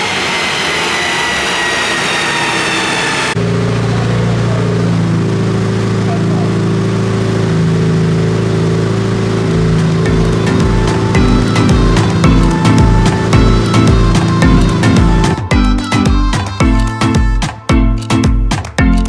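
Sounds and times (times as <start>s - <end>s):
car engine winding down: 0.0s - 16.9s
sustained music tones: 3.3s - 19.0s
regular music beat: 9.6s - 19.0s.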